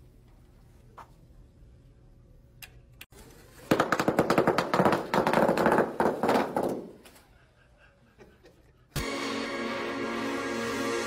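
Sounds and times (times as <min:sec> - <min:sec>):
bubble wrap popping: 0:03.6 - 0:06.9.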